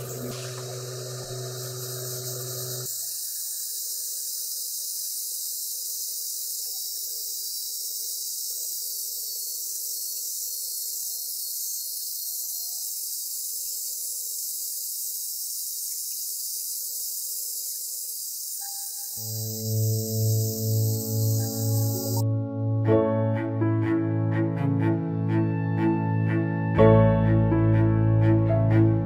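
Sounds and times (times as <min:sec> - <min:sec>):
rotary polisher hissing: 0:00.0 - 0:10.2, 0:19.0 - 0:22.2.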